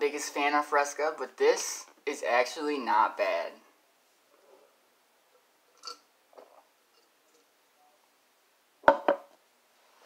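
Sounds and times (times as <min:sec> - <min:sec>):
glass knocking on a table: 0:08.8 - 0:09.3.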